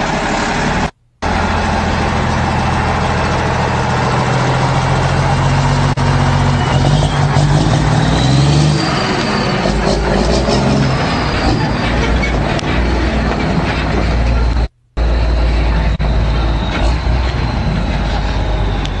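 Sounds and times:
diesel truck engine under load: 0.0 - 19.0.

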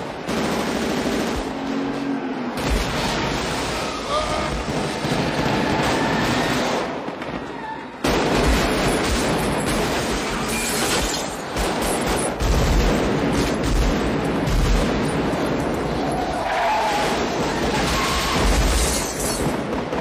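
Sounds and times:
rapid automatic rifle fire: 0.0 - 1.6, 4.5 - 7.4, 8.0 - 15.7.

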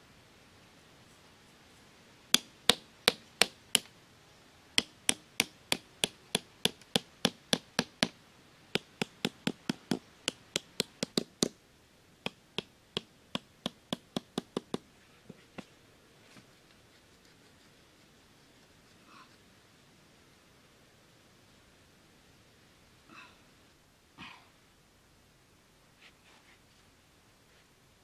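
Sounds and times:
small hammer tapping sticks: 4.8 - 8.2, 8.8 - 11.6, 12.2 - 14.8.

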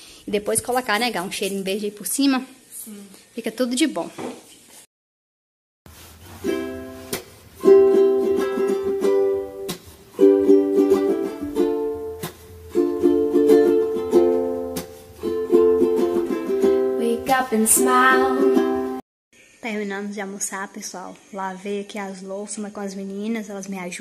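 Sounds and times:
plucked string music: 5.9 - 19.0.

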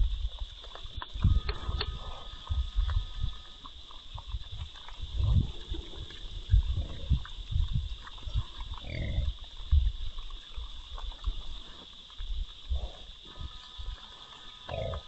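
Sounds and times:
high-pitched hiss: 0.0 - 15.0
hogs grunting: 8.2 - 9.5, 12.7 - 15.0.

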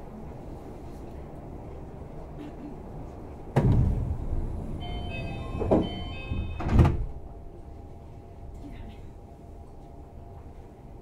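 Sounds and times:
train low rumble: 0.0 - 11.0
sliding doors rushing: 3.5 - 7.2
doors shutting thud: 3.6 - 4.3, 5.0 - 7.1
electronic door chime tones: 4.8 - 6.8.

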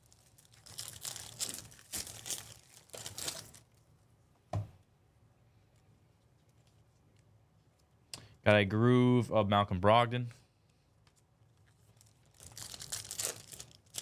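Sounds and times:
foil wrapper crinkling and tearing: 0.0 - 3.8, 11.6 - 14.0.

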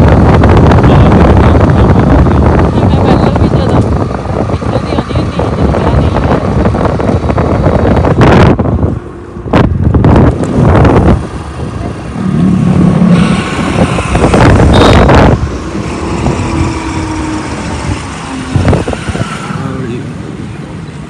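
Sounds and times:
scooter road and engine noise: 0.0 - 21.0
wind buffeting microphone: 0.0 - 21.0.

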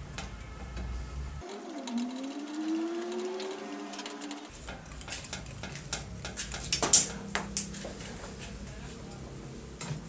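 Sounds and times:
faint rising tone: 1.4 - 4.5
metal parts clinking and scraping: 1.4 - 8.2.

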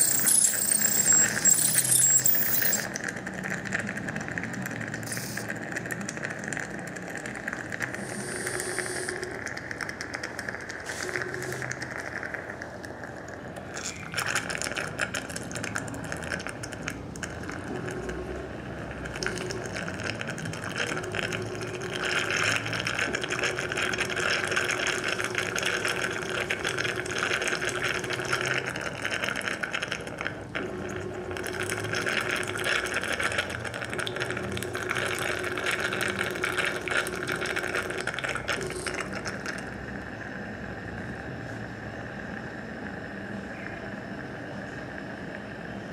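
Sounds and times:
surgical motor low hum: 0.0 - 45.9
surgical suction hiss: 8.0 - 9.2.

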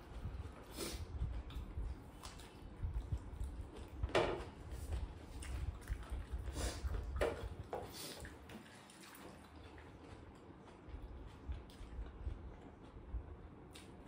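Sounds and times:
chewing and mouth smacks: 0.1 - 14.0.

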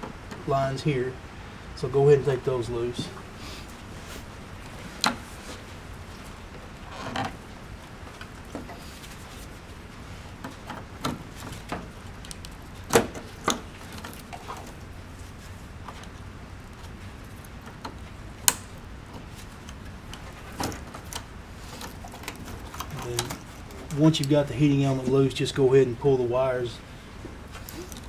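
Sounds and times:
wire connectors clicking: 17.3 - 18.8.

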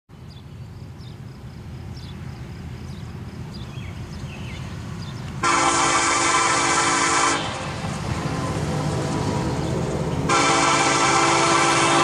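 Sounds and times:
train rumble: 0.1 - 12.0
locomotive air horn blast: 5.4 - 9.6, 10.2 - 12.0.

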